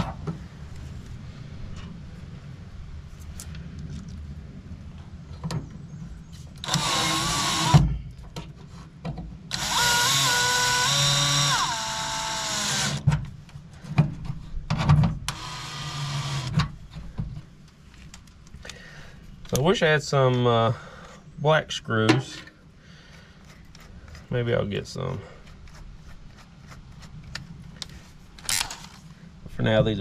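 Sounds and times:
cordless drill driving screws: 0:06.6 - 0:07.8, 0:09.5 - 0:13.1, 0:15.3 - 0:16.6
drill bit clicks: 0:06.6 - 0:07.8, 0:09.5 - 0:13.0.

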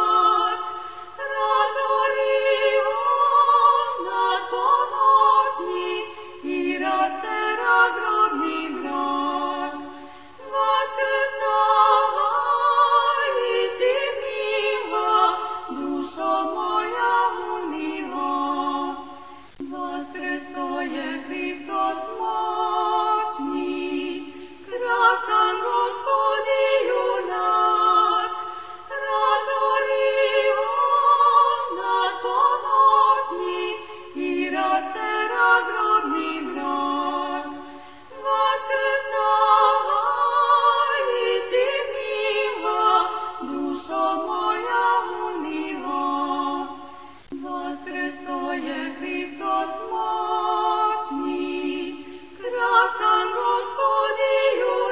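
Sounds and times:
choir singing a hymn: 0:00.0 - 0:54.9
singers breathing: 0:00.6 - 0:01.2, 0:09.8 - 0:10.4, 0:28.4 - 0:28.9, 0:37.6 - 0:38.2.

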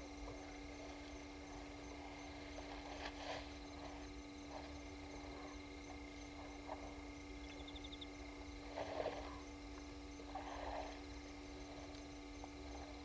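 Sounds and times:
night insects chirping: 0:00.0 - 0:13.0.

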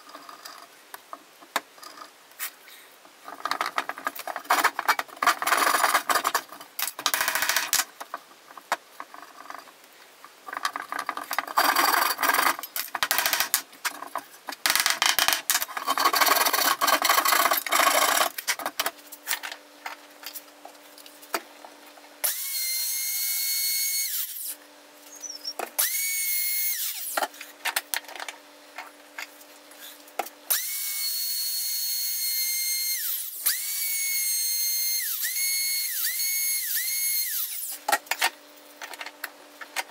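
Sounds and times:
router whining while cutting wood: 0:25.8 - 0:27.2, 0:30.5 - 0:37.7.

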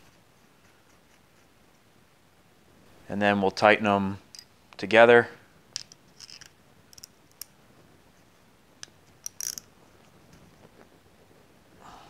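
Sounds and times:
ratcheting wrench clicks: 0:05.8 - 0:07.5, 0:09.2 - 0:09.6.

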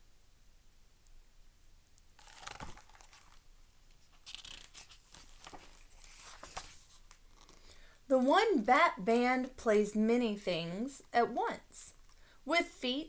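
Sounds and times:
book pages rustling: 0:02.2 - 0:07.6.

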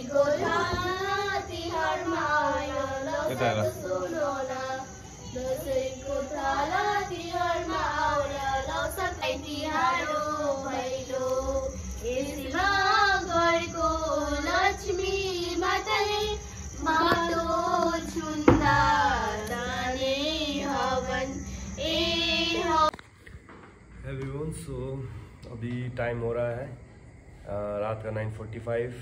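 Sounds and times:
girl and women singing in unison: 0:00.0 - 0:23.0.

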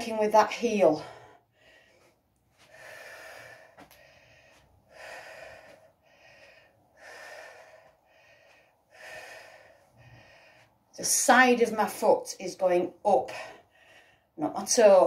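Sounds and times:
woman breathing while exercising: 0:01.0 - 0:11.0, 0:13.3 - 0:14.4.

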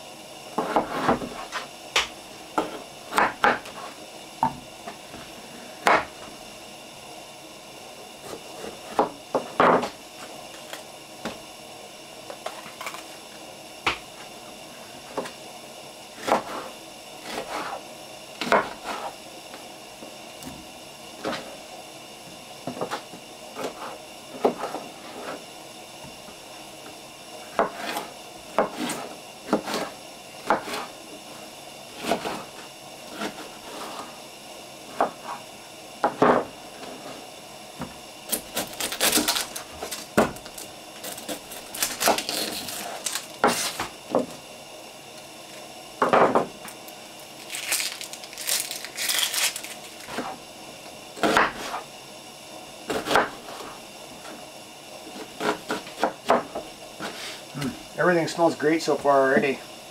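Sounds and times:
knife chopping on wooden counter: 0:02.0 - 0:03.8, 0:05.8 - 0:06.1, 0:08.9 - 0:09.9, 0:18.4 - 0:19.1, 0:27.5 - 0:30.9, 0:51.2 - 0:51.8, 0:52.9 - 0:53.7.

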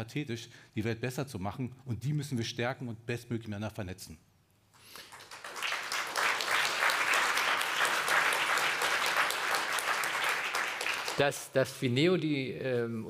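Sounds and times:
audience applauding: 0:05.0 - 0:11.4.

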